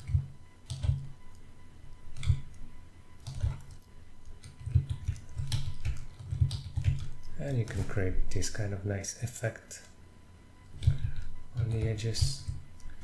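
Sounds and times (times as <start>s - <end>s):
keyboard key presses: 0.0s - 1.1s, 2.2s - 2.6s, 3.2s - 7.3s, 10.7s - 12.9s
computer mouse clicks: 0.0s - 1.4s, 2.2s - 2.6s, 3.2s - 7.4s, 10.6s - 13.0s.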